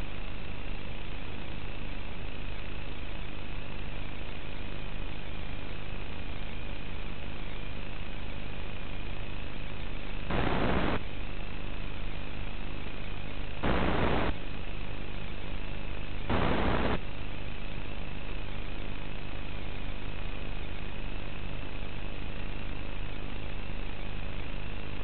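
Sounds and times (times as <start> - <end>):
steady buzz and hiss: 0.0 - 25.0
radio static bursts: 10.3 - 11.0, 13.5 - 14.4, 16.2 - 17.0.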